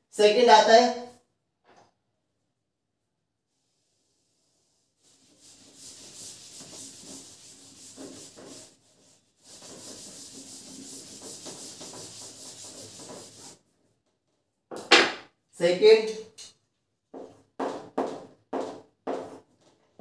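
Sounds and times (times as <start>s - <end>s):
scratchy rubbing on board: 4.4s - 13.6s.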